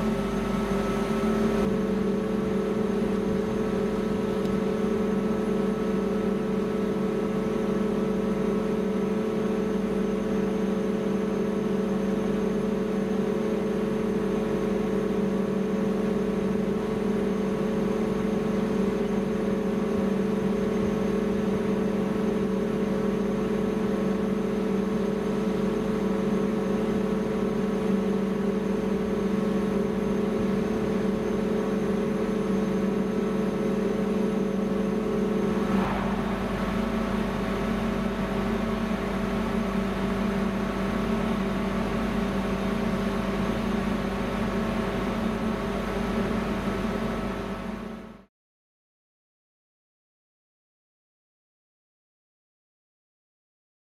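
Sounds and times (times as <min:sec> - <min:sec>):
ship machinery hum: 0:00.0 - 0:48.2
brief rush of noise: 0:35.4 - 0:38.8.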